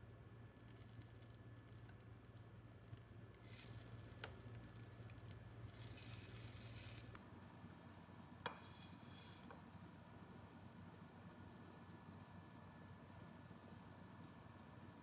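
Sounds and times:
bread sizzling in a frying pan: 2.2s - 7.2s.

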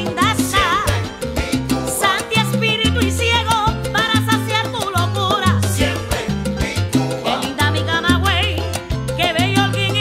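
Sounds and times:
person singing: 0.0s - 1.2s
salsa band playing live: 0.0s - 10.0s.

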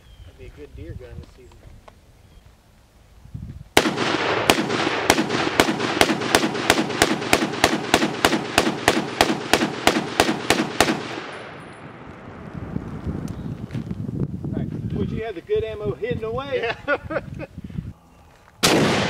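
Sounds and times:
rifle shots: 3.8s - 12.1s, 18.6s - 19.0s.

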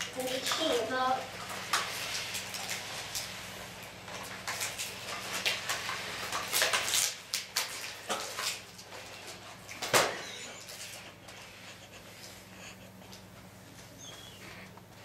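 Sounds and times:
faint steady hum: 7.8s - 15.0s.

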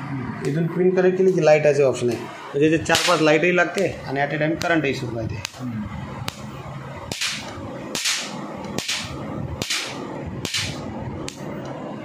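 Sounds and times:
electric sparks snapping: 2.9s - 3.4s, 5.4s - 5.6s, 6.2s - 6.5s, 7.1s - 11.6s.

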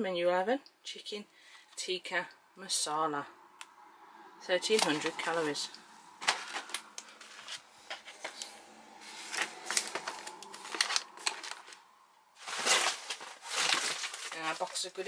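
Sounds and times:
plastic pouches crinkling: 4.7s - 15.0s.

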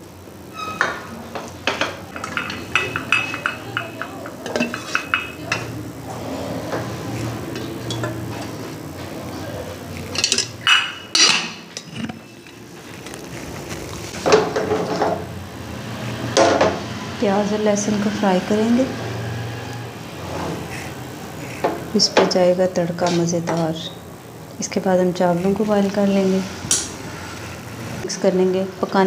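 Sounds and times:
low steady hum: 0.0s - 14.2s
pot clattering: 1.6s - 5.8s, 7.5s - 8.6s, 10.1s - 12.6s
wooden spoon scraping metal pot: 1.6s - 8.8s, 10.0s - 14.2s.

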